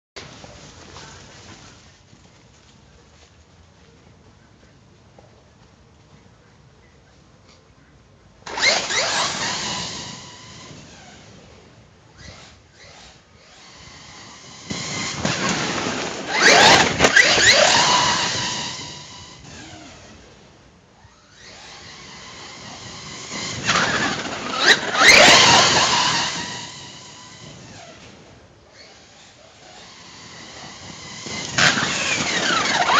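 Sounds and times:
electric motor whining: 0:08.5 - 0:32.9.

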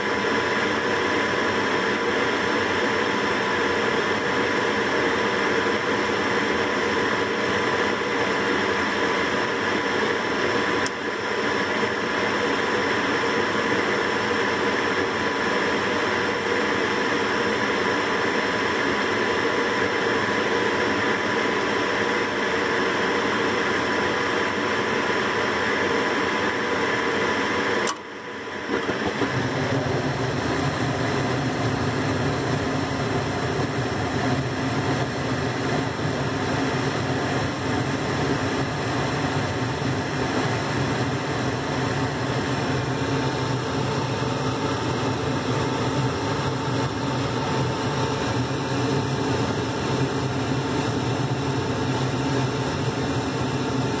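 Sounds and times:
furnace inducer motor running: 0:00.0 - 0:54.0
low rumble of burner flames: 0:26.5 - 0:54.0
gas valve click: 0:27.8 - 0:28.1.

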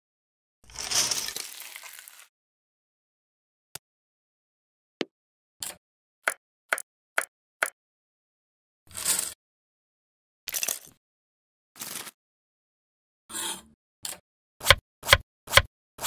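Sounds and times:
toy pieces clattering on wood: 0:10.5 - 0:11.0.

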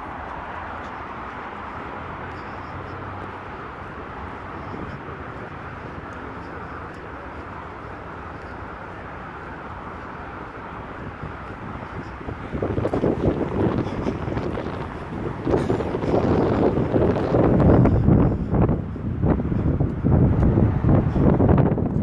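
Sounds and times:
rushing wind and water: 0:08.3 - 0:22.0.

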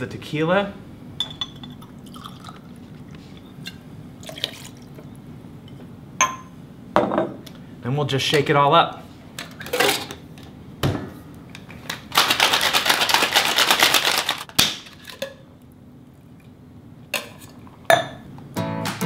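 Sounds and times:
cocktail shaker rattling: 0:12.2 - 0:14.4.

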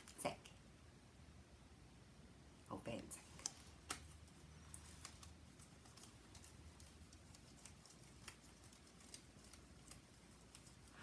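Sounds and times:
cards clicking and tapping: 0:03.3 - 0:10.6.

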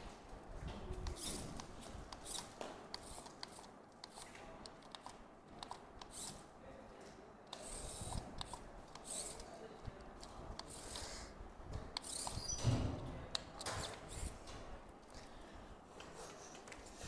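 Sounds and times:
robot drive motors whirring: 0:01.1 - 0:04.3, 0:06.0 - 0:06.5, 0:07.5 - 0:09.5, 0:12.0 - 0:12.7.

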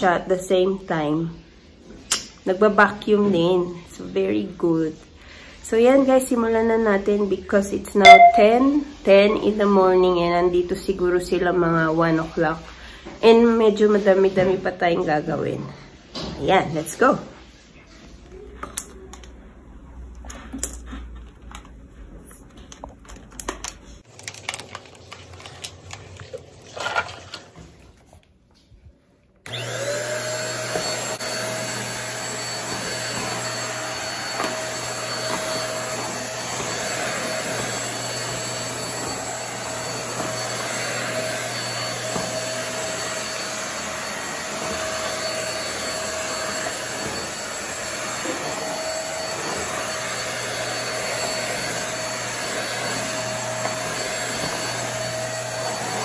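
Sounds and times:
vacuum cleaner motor whine: 0:29.4 - 0:56.0.

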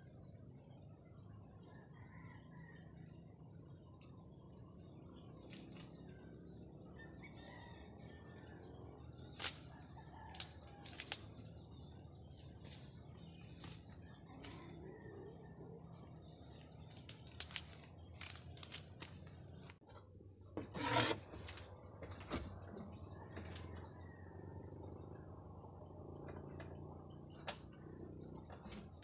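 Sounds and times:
faint outdoor background: 0:00.0 - 0:29.0
twigs snapping and leaves rustling: 0:09.4 - 0:09.7, 0:10.3 - 0:11.3, 0:16.9 - 0:19.8.

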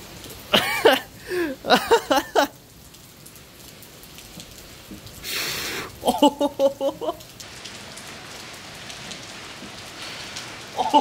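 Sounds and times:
rain falling: 0:00.0 - 0:11.0
person crying out excitedly: 0:05.9 - 0:07.2, 0:10.7 - 0:11.0.

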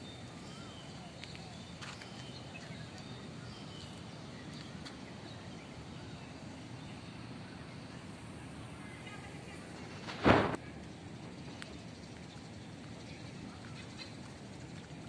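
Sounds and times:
steady low outdoor noise: 0:00.0 - 0:15.0.

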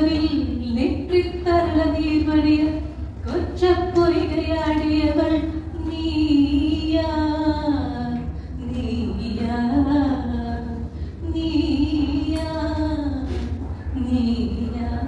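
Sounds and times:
steady low hum: 0:00.0 - 0:15.0
woman singing into a microphone: 0:00.0 - 0:15.0.

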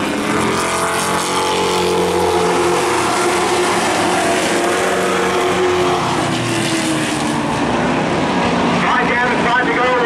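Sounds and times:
race car engines running hard: 0:00.0 - 0:10.0.

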